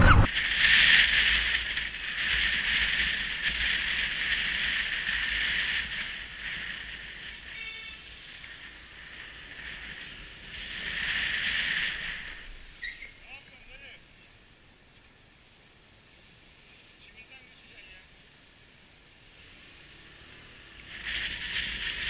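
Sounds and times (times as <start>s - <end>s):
wind and road noise: 0.0s - 22.0s.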